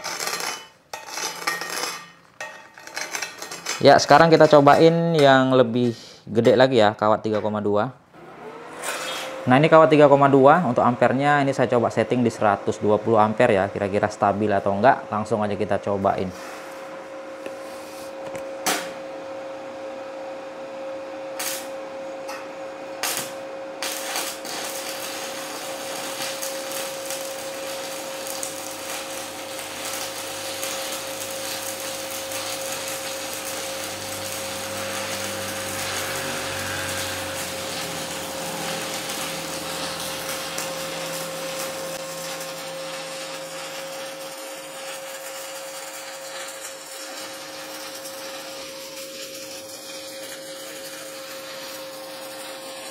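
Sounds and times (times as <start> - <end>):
crackling hiss of welding arc: 0.0 - 6.0, 21.3 - 21.8, 23.0 - 52.9
welder hum: 0.0 - 6.5, 8.1 - 52.9
welding arc strikes: 0.0 - 6.7, 18.5 - 19.1, 21.3 - 52.9.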